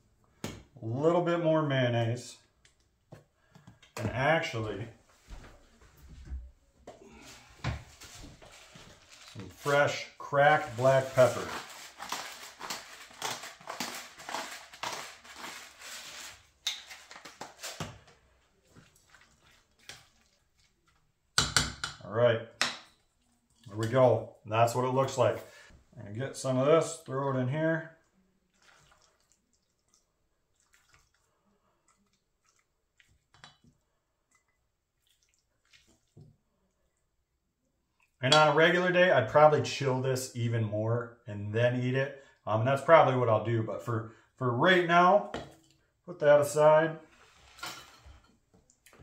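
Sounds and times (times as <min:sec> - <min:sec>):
pepper grinder crunching: 0:10.6 - 0:17.8.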